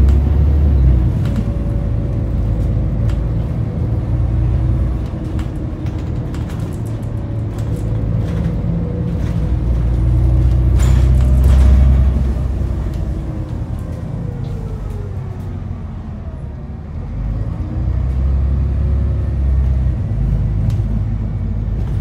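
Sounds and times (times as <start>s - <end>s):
bus engine rumbling: 0.0s - 22.0s.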